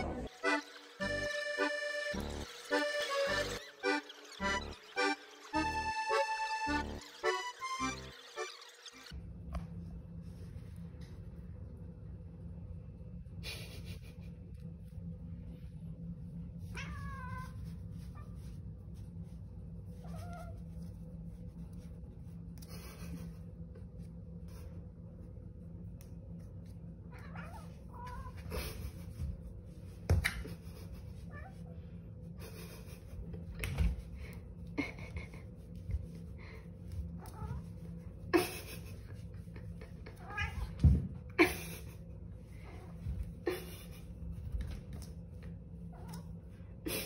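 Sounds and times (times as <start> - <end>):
cat meowing: 40.2 - 40.8.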